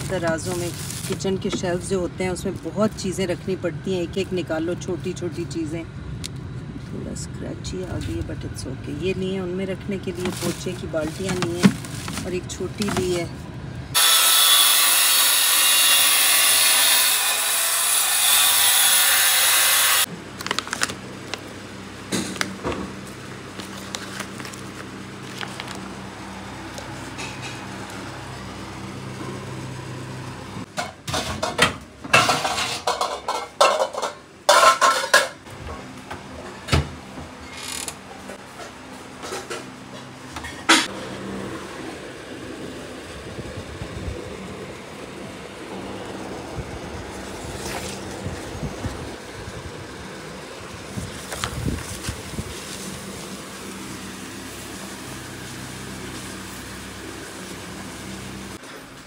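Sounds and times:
steady low hum: 0.0 - 14.0
low mechanical hum: 0.0 - 59.0
paper sheets rustling and tapping: 23.5 - 25.8
pots and pans clanking: 30.7 - 35.4.

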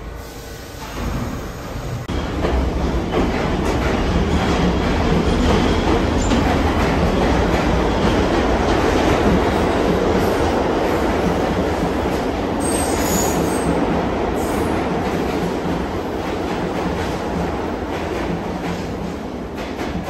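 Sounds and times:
subway train rumbling: 0.0 - 20.0.

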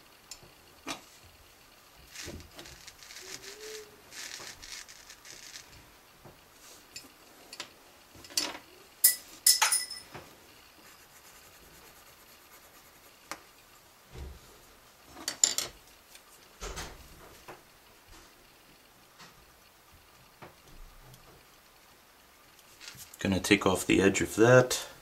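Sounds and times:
soft rubbing hiss: 0.0 - 9.4, 10.2 - 15.2, 21.4 - 23.7
sharp clicks and ringing clinks: 9.0 - 10.1.

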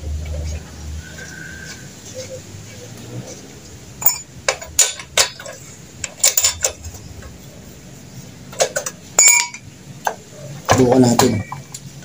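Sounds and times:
metal tools clinking: 4.0 - 7.0, 8.5 - 9.7.

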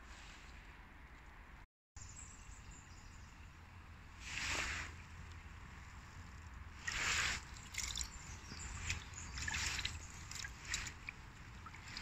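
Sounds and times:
stream trickling over pebbles: 4.2 - 12.0
water sloshing around hand: 6.8 - 12.0.

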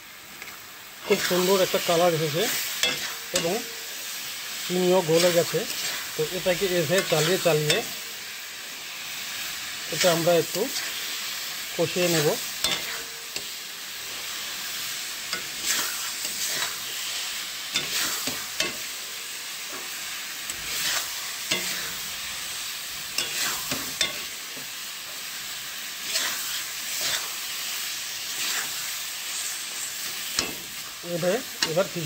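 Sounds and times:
chutney sizzling in a pan: 0.0 - 32.0
spatula scraping a pan: 15.3 - 18.9, 20.5 - 22.0, 23.1 - 25.2, 26.0 - 27.4, 28.2 - 30.9.

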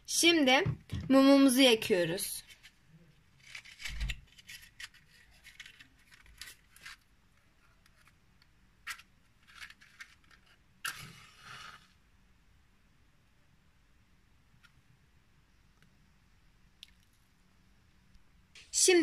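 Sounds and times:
match scraping on matchbox: 9.5 - 12.0.

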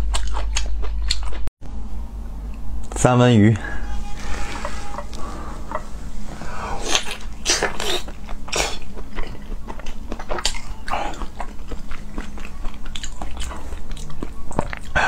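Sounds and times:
person chewing wetly: 0.0 - 1.5, 6.9 - 15.0.

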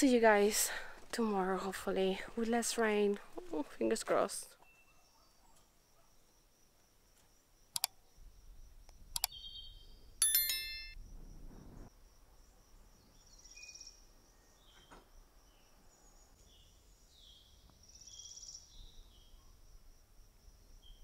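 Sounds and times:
short bright chime: 10.2 - 11.0.

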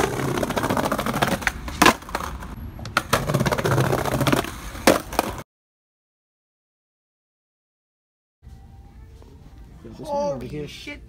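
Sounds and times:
skateboard clacking on bricks: 0.0 - 5.4
skateboard wheels rattling on bricks: 0.0 - 5.4.

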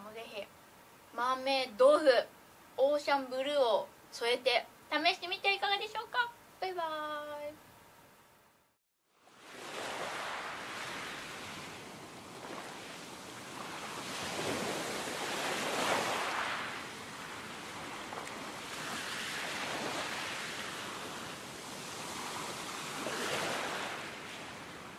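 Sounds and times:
ocean waves washing: 9.2 - 24.9.

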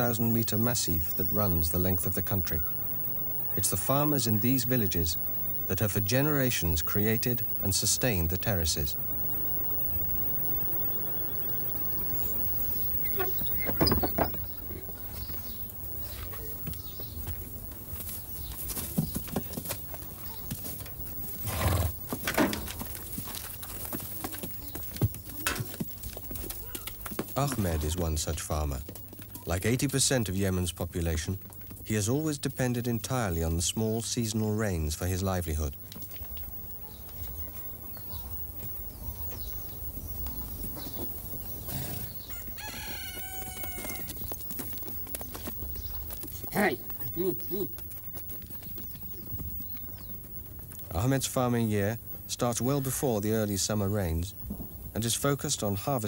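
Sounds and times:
hooves clopping on stony ground: 0.0 - 53.7
faint outdoor background: 0.0 - 56.0
rooster crowing: 42.0 - 44.3.

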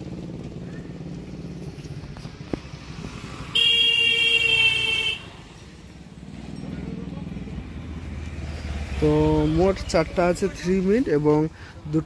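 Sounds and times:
engine running: 0.0 - 3.4
vehicle horn blast: 3.5 - 5.4.

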